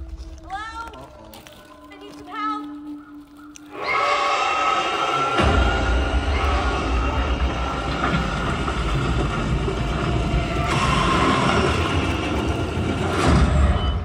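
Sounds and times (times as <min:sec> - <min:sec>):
horror trailer soundtrack drone: 0:03.6 - 0:14.0.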